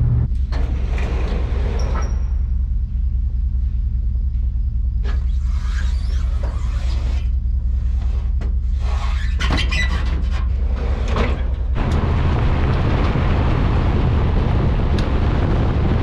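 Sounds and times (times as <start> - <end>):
road and wind noise: 0.0 - 16.0
shed door squeaking and rattling: 8.9 - 11.6
pickup truck engine running: 11.5 - 16.0.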